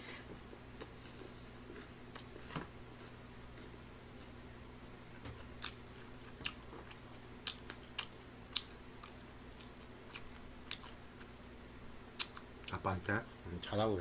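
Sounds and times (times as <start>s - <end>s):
faint steady hum: 0.0s - 14.0s
person chewing with mouth clicks: 0.8s - 2.4s, 5.1s - 11.3s, 12.2s - 12.8s.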